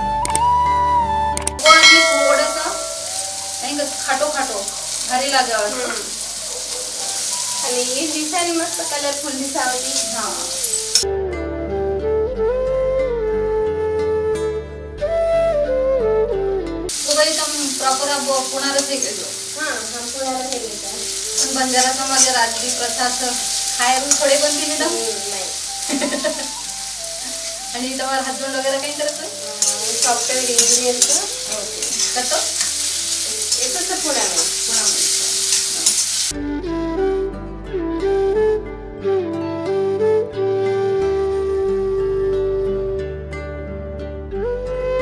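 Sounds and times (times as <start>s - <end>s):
background music: 0.0s - 45.0s
vegetables sizzling in hot oil: 1.6s - 11.0s, 16.9s - 36.4s
metal spatula scraping pan: 29.6s - 36.1s.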